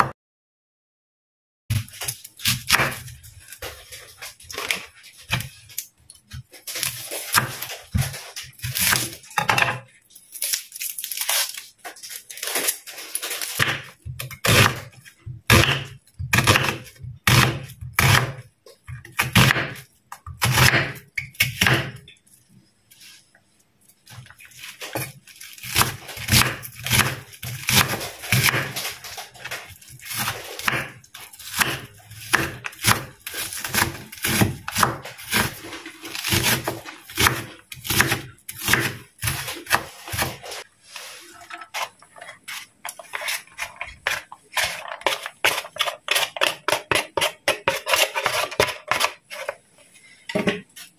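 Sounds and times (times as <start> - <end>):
knife chopping on wooden board: 13.6 - 18.4, 19.0 - 22.0, 24.9 - 28.8, 30.0 - 40.6.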